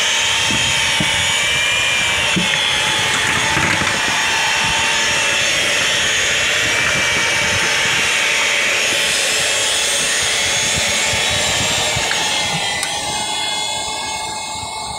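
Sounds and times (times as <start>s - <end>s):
roof seaming machine whine: 0.0s - 14.9s.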